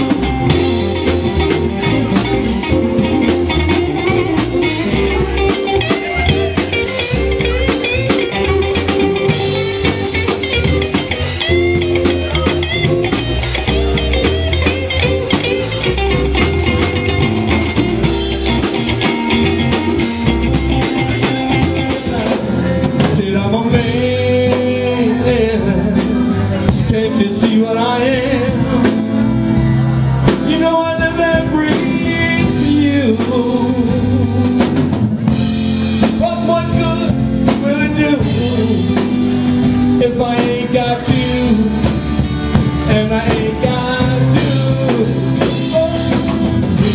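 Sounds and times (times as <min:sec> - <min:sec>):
blues rock band playing: 0:00.0 - 0:46.9
person singing: 0:19.3 - 0:29.2, 0:30.3 - 0:34.6, 0:36.0 - 0:46.9.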